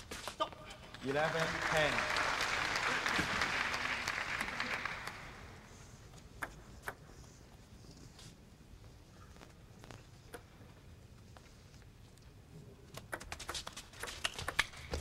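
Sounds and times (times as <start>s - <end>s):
spectators applauding: 0.8s - 5.7s.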